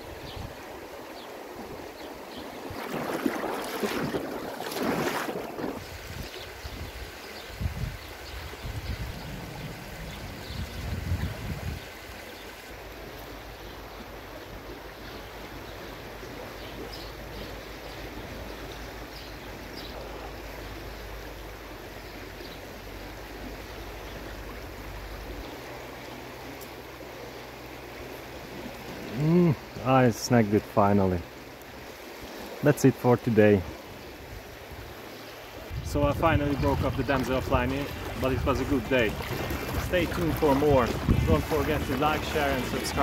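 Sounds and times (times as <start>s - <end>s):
river water rushing: 0.0s - 11.2s, 11.8s - 43.0s
wind buffeting microphone: 2.7s - 12.0s, 35.7s - 43.0s.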